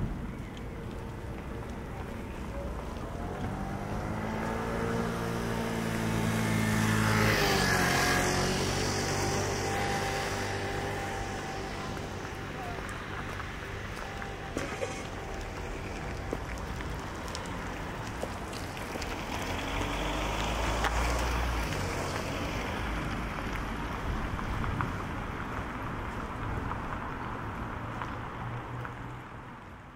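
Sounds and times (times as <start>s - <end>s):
traffic noise: 0.0s - 29.9s
vehicle passing: 0.0s - 29.9s.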